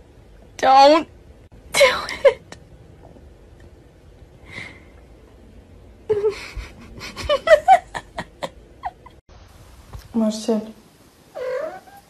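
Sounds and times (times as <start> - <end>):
person laughing: 6.1 - 9.2.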